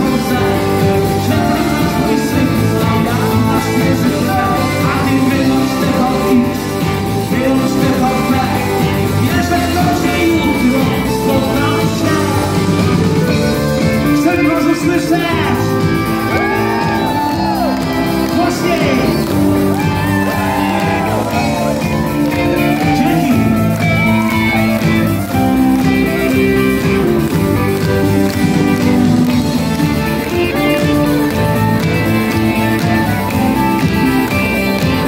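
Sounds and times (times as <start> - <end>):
man singing: 0.0 - 24.2
drums: 0.0 - 35.0
electric guitars: 0.0 - 35.0.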